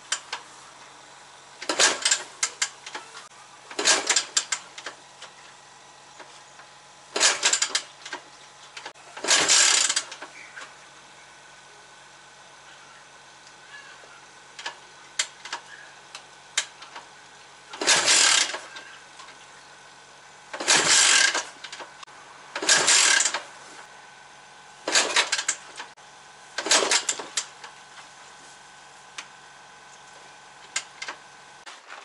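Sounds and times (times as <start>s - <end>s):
motorcycle engine idling: 0.0s - 31.6s
engine revving bursts: 3.7s - 4.6s, 7.1s - 7.8s, 9.2s - 10.3s, 17.7s - 19.2s, 20.5s - 23.5s, 24.8s - 25.9s, 26.6s - 27.4s.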